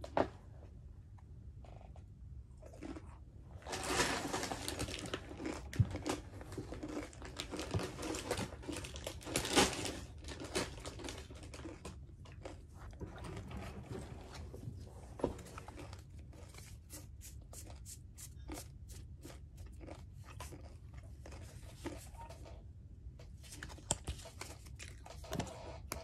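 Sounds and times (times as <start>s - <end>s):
foil wrapper crinkling: 3.7s - 5.7s.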